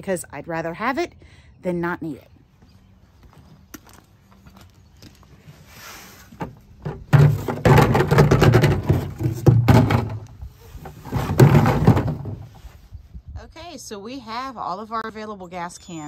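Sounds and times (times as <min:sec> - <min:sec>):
plastic cans knocking and scraping: 0:06.4 - 0:12.6.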